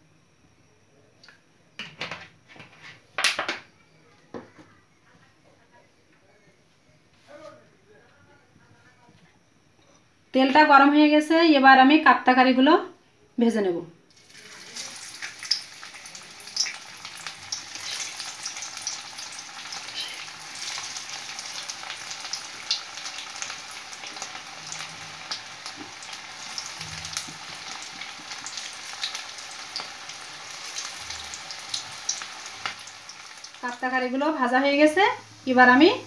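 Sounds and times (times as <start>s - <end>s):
food deep-frying in hot oil: 14.1s - 36.0s.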